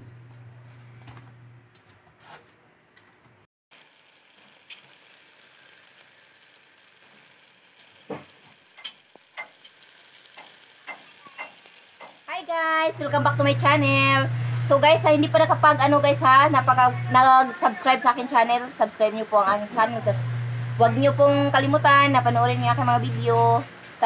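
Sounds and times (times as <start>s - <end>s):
pot simmering with bubbling sizzle: 3.7s - 18.7s, 19.3s - 24.0s
small pops and clicks: 7.8s - 12.2s
low hum: 12.7s - 17.4s, 19.6s - 23.7s.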